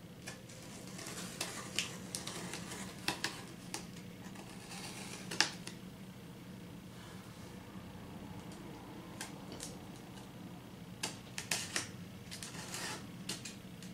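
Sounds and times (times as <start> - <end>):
pen scraping packing tape: 11.4 - 13.6.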